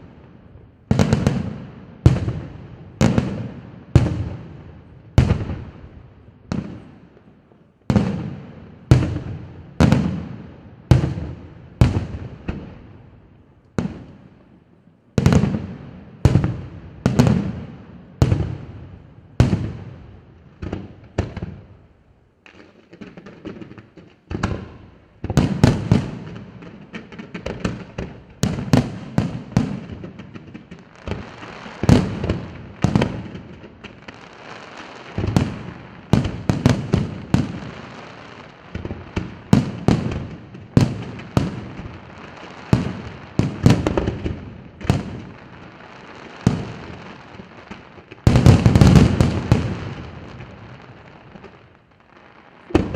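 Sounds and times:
fireworks bursting: 0.0s - 13.1s, 15.1s - 52.9s.

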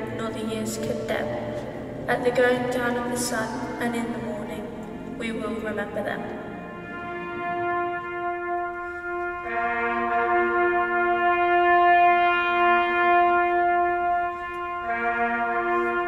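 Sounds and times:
brass call with held notes: 6.3s - 16.0s.

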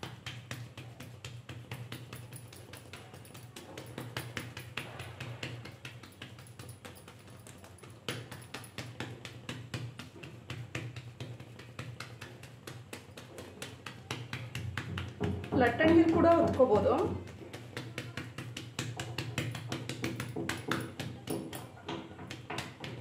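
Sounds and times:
fingers patting soft dough: 0.0s - 23.0s.

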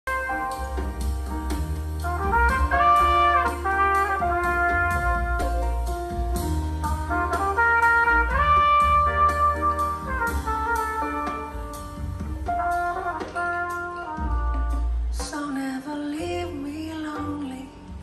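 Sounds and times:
brass-led jazz over loudspeakers: 0.0s - 18.0s.

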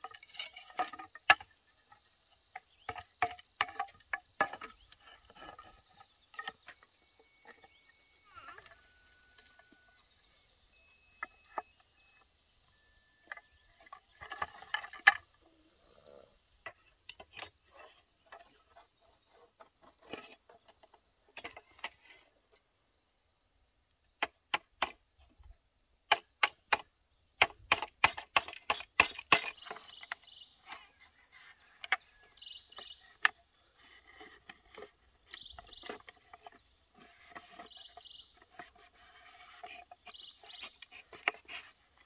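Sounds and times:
bamboo strips clattering: 0.0s - 7.6s, 13.3s - 15.3s, 27.4s - 42.0s
knife chopping bamboo: 27.4s - 29.5s.

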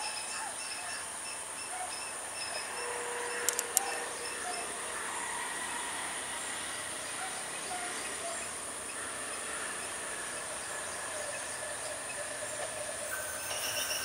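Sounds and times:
insects chirping: 0.0s - 14.0s
faint diesel train approaching: 2.0s - 14.0s.

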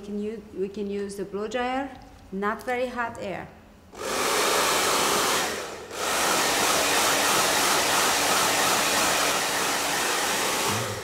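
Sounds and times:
hair dryer blowing: 4.0s - 11.0s.

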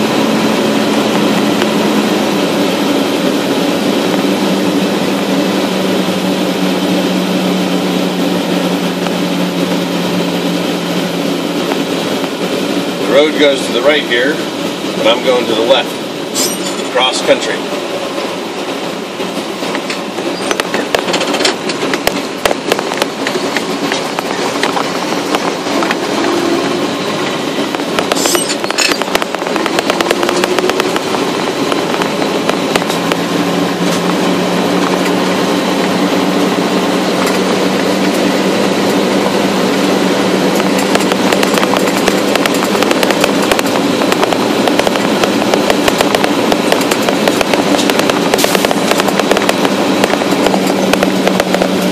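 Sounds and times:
motor drone: 0.0s - 16.2s
continuous rushing noise: 0.0s - 51.9s.

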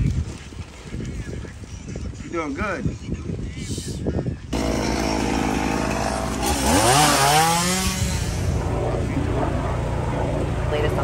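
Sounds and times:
small engine starting and revving: 4.6s - 8.6s.

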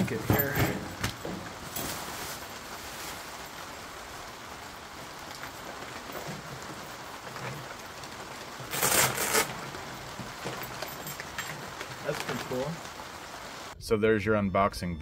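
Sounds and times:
rain hissing: 0.0s - 13.8s
packaging rustling: 1.1s - 13.3s.

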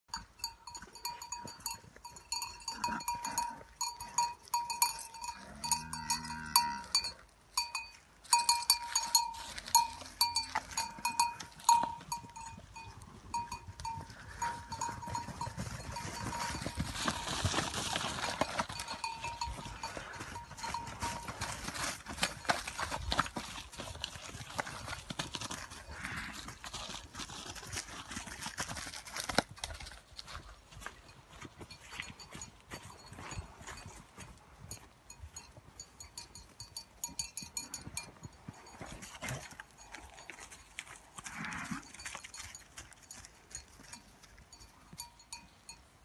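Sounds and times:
cowbell clanking: 0.1s - 23.0s, 31.6s - 40.6s, 41.8s - 45.9s
hooves rustling through grass: 0.1s - 45.5s
cow mooing: 5.3s - 7.0s.

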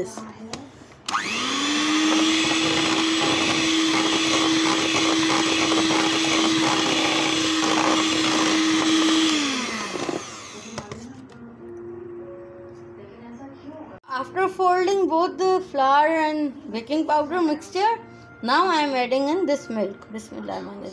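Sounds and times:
electric hand mixer whining: 1.1s - 11.0s.

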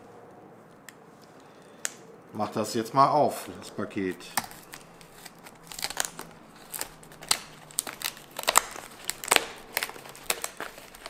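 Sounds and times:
packing tape and cardboard crackling: 3.4s - 11.0s.

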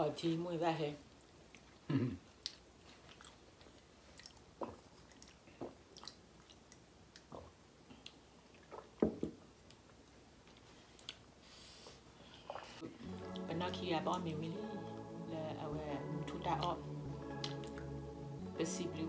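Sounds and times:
chewing: 1.1s - 8.9s.

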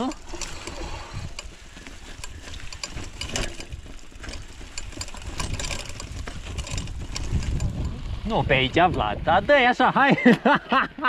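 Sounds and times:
bike clicks and rattles: 0.0s - 9.4s
bike tyres rumbling on dirt: 0.0s - 9.9s.

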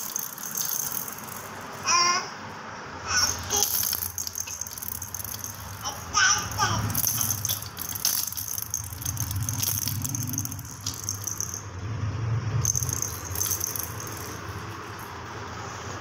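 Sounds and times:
plastic rattle shaken: 0.0s - 1.8s, 3.2s - 11.8s, 12.6s - 15.3s.

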